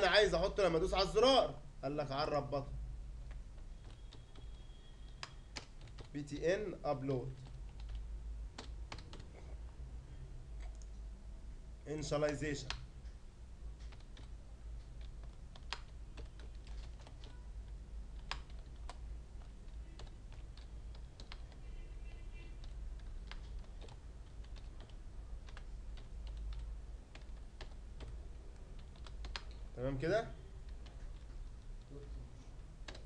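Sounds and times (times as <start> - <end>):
low steady hum: 0.0 - 33.0
keyboard keystrokes clicking: 3.2 - 6.2, 8.6 - 9.3, 13.8 - 21.6, 22.6 - 28.2, 28.8 - 29.6.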